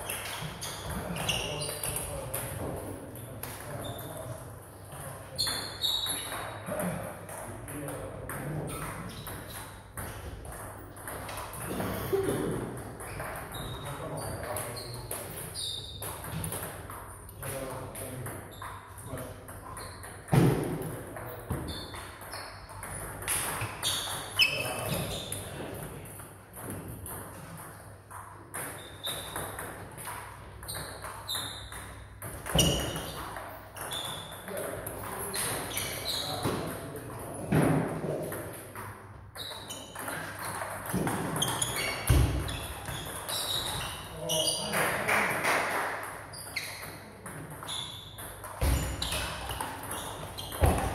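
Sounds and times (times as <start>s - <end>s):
short high squeaks: 5.4s - 6.4s, 15.6s - 16.0s, 41.4s - 44.7s
table tennis ball hits: 19.6s - 50.9s.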